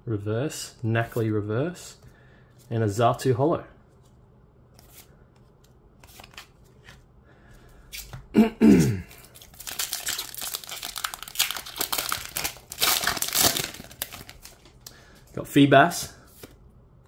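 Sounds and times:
card handling: 3.9 - 7.0, 9.2 - 15.0
foil wrapper tearing and crinkling: 9.3 - 14.7.

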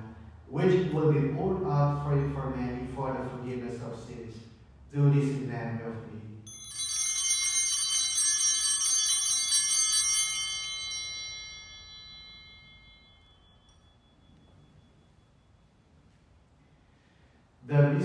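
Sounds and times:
altar bells ringing: 6.4 - 16.1.

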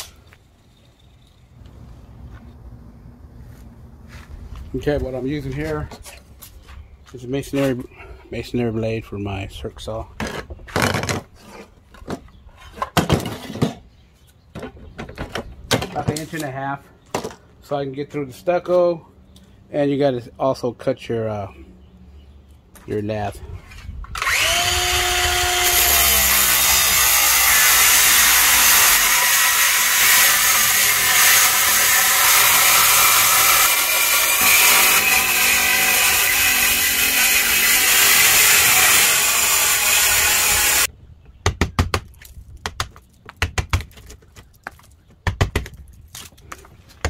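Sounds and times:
circular saw cutting stucco: 24.2 - 40.9.

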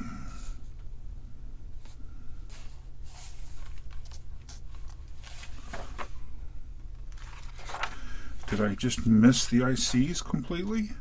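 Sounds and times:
paper pages rustling: 2.5 - 6.2, 6.9 - 10.8.

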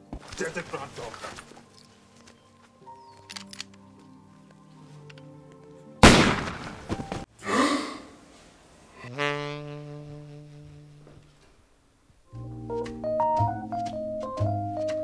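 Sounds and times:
background music: 0.0 - 7.3, 12.3 - 15.0
loud bang: 6.0 - 7.2.

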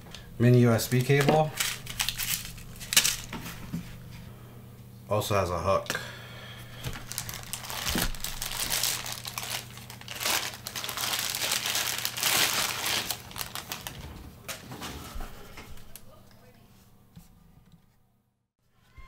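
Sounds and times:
plastic wrapping crinkling: 0.7 - 3.7, 6.8 - 14.6.

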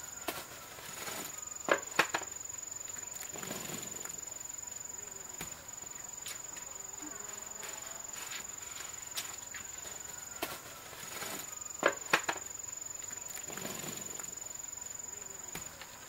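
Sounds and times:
bamboo basket rustling: 0.0 - 4.3, 7.4 - 14.4
high-pitched insect trill: 0.0 - 16.0.

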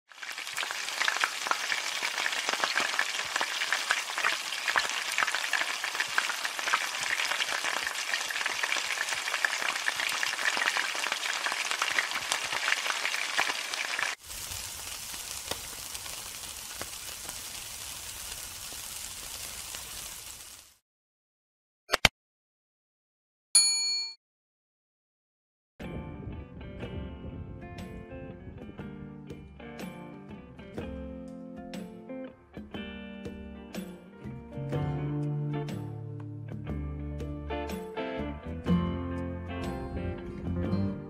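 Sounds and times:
meat skewers sizzling on grill: 0.1 - 20.8
oil frying hard in a wok: 0.1 - 20.8.

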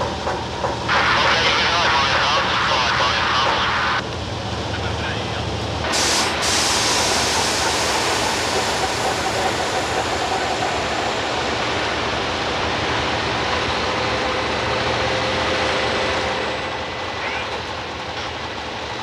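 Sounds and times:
loud rushing machine noise: 0.9 - 4.0.

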